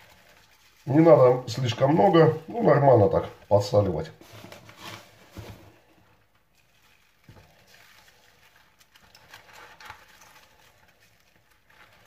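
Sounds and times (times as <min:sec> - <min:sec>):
cabbage leaves rustling and crinkling: 0:00.0 - 0:12.0.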